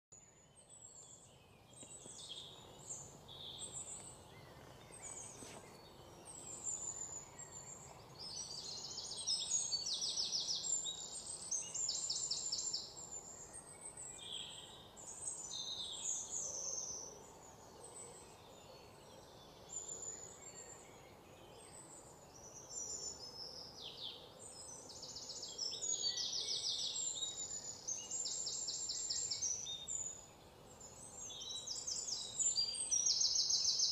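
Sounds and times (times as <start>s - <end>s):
songbirds chirping and trilling: 0.1s - 33.9s.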